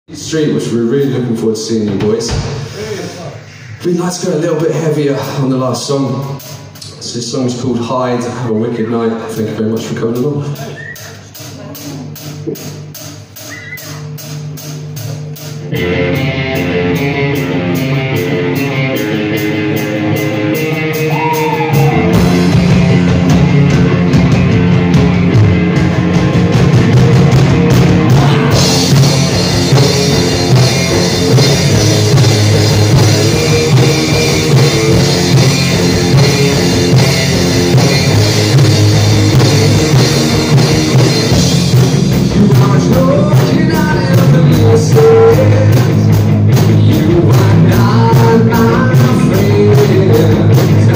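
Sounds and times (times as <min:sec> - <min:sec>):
drums: 0:00.1 - 0:50.9
bass guitar: 0:04.2 - 0:50.9
electric guitar: 0:11.4 - 0:50.9.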